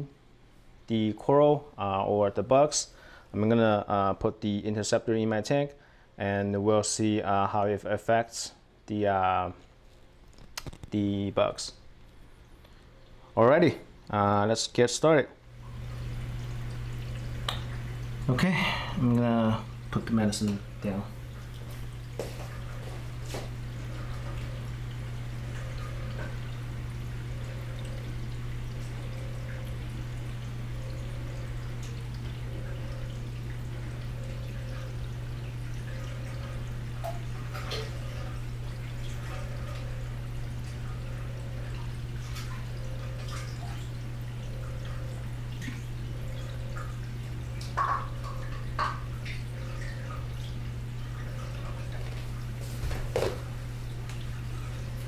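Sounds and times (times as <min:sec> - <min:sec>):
aquarium pumps humming: 0:00.0 - 0:55.0
water trickling and dripping: 0:10.3 - 0:14.2, 0:15.4 - 0:55.0.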